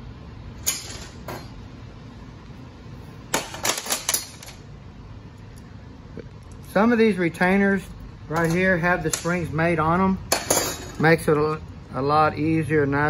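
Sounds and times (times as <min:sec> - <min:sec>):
steady low hum: 0:00.0 - 0:13.0
metal parts clinking: 0:00.6 - 0:01.5, 0:03.3 - 0:04.6, 0:08.3 - 0:09.4.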